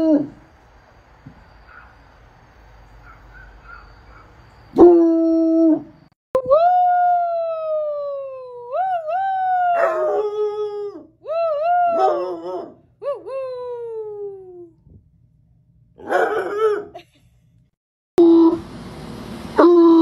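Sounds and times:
dog howling: 8.8s - 13.3s.

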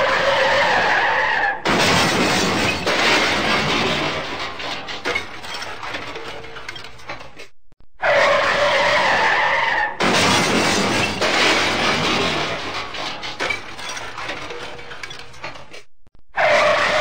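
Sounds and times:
car tyres screeching: 0.0s - 1.7s, 8.0s - 14.6s, 16.4s - 17.0s
car crash: 0.0s - 7.4s, 8.1s - 15.8s
glass shattering: 1.6s - 7.2s, 10.0s - 15.7s
debris settling: 1.6s - 7.4s, 10.0s - 15.8s
debris scattering: 1.6s - 7.5s, 10.0s - 17.0s.

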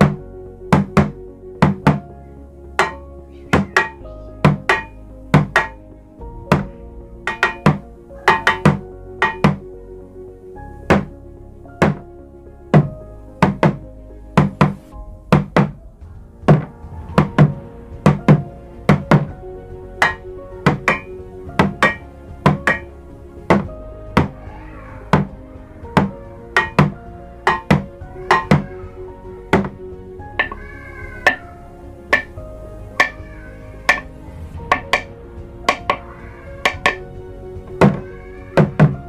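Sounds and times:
drumsticks beating plastic drum: 2.8s - 5.8s, 7.3s - 9.6s, 20.0s - 22.9s, 26.0s - 28.6s, 32.1s - 32.4s, 33.0s - 33.2s, 33.9s - 34.1s, 34.7s - 35.1s, 35.7s - 36.0s.

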